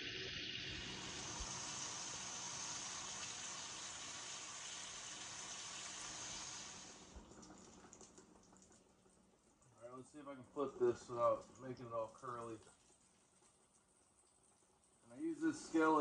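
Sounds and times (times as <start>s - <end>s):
bacon sizzling in a skillet: 0.0s - 8.8s.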